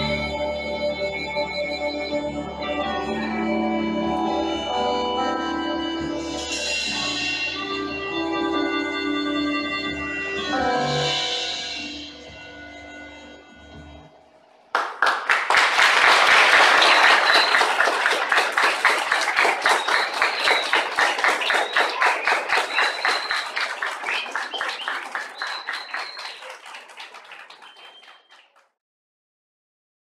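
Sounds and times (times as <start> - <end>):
music: 0.0 - 14.9, 16.0 - 27.9
audience clapping: 14.7 - 28.7.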